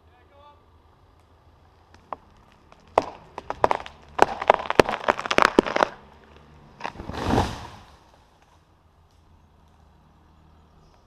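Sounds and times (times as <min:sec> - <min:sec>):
tree trunk cracking and tearing: 0:01.8 - 0:08.6
tree trunk crashing to ground: 0:01.9 - 0:06.0, 0:06.8 - 0:08.4.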